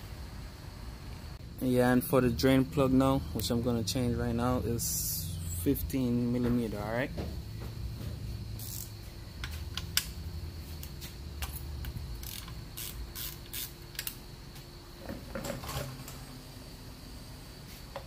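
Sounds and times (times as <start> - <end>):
ratchet wrench clicking: 8.6 - 10.2, 10.8 - 14.2.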